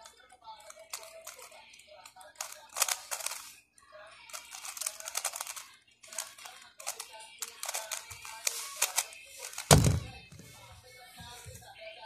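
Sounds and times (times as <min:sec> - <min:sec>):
puzzle cube plastic clicks: 0:00.0 - 0:03.6, 0:04.3 - 0:10.1.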